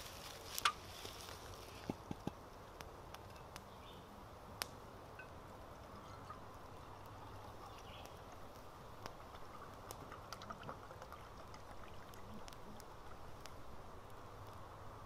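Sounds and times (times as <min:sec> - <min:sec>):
campfire crackling and popping: 0:00.0 - 0:15.0
liquid pouring into mug: 0:06.9 - 0:13.3.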